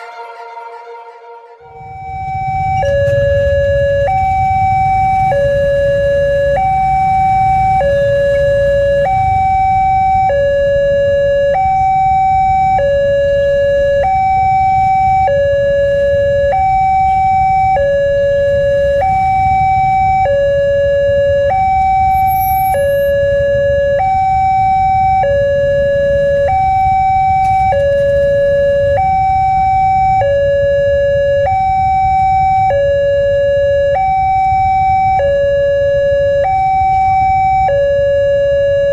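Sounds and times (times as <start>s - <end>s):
two-tone crossing alarm: 0.0s - 38.9s
low rumble: 1.6s - 12.8s.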